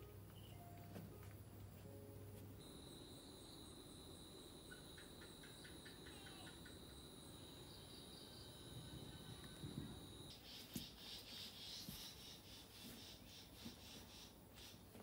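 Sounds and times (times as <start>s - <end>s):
high-pitched insect trill: 2.6s - 10.6s
soft chirps: 2.6s - 14.8s.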